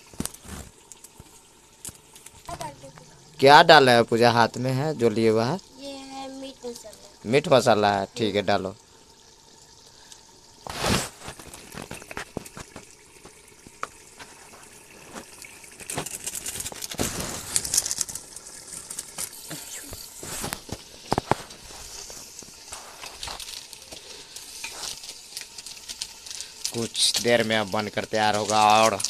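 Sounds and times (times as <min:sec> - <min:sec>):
curry sizzling in a pot: 0:00.0 - 0:29.0
ladle scraping a pot: 0:18.7 - 0:27.2.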